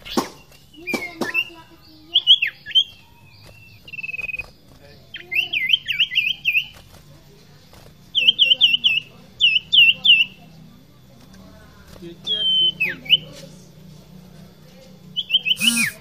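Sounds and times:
bird singing whistled notes: 0.0 - 6.8, 8.1 - 10.4, 12.2 - 13.4, 15.1 - 16.0.

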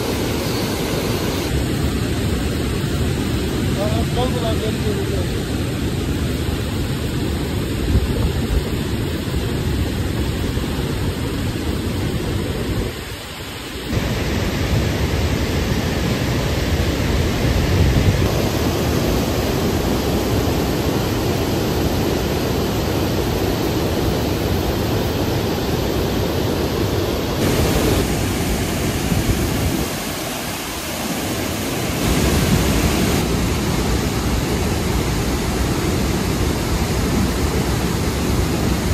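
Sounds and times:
water rushing through dam gate: 13.2 - 38.9.

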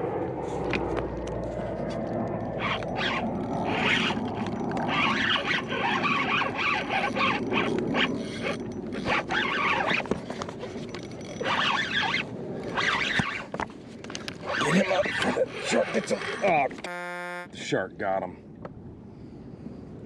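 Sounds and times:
fishing reel cranking: 2.4 - 13.5, 14.1 - 17.5
reel drag squealing: 2.4 - 13.6, 14.2 - 17.6.

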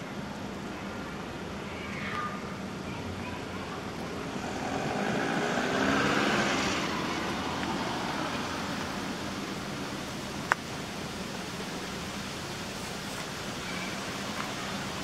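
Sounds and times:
vehicle driving past: 4.1 - 9.4.

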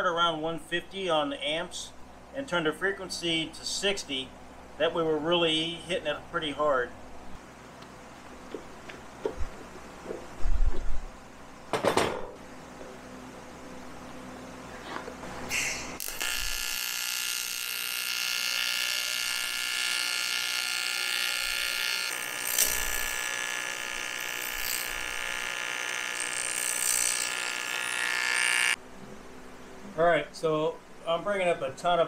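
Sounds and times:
welding arc buzzing: 15.5 - 28.8.

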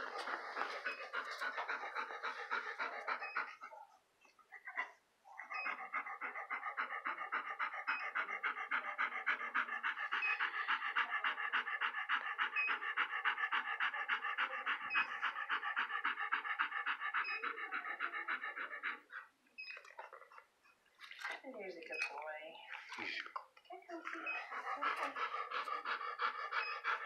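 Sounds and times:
dog panting: 0.0 - 27.0.

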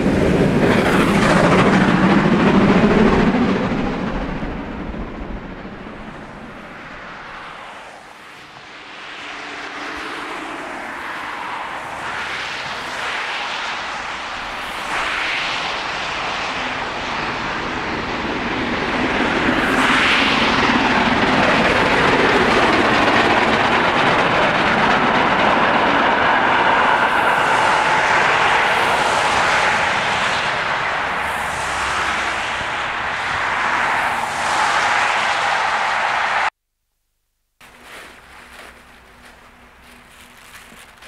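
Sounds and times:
train coaches rolling on rails: 17.4 - 36.5, 37.6 - 41.0
steam locomotive exhaust: 18.9 - 36.5.

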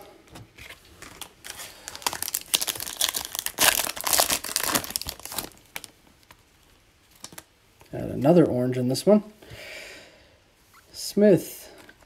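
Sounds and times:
foil wrapper crinkling and tearing: 1.0 - 6.4.

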